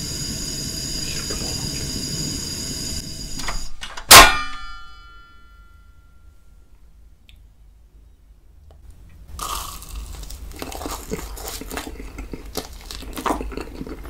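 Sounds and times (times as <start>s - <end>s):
biting marshmallow: 9.4s - 14.0s
chewing with crackles: 9.4s - 14.0s.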